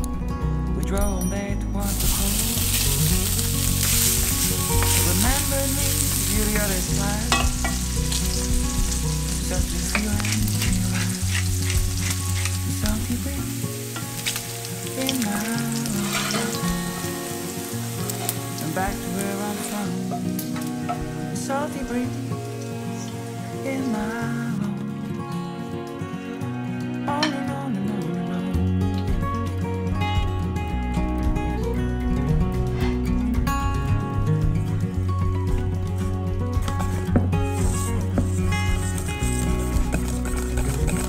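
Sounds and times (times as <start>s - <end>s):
meat sizzling in a pan: 1.9s - 23.6s
clinks and scrapes of stirring: 6.2s - 7.9s, 15.9s - 16.6s, 37.6s - 41.0s.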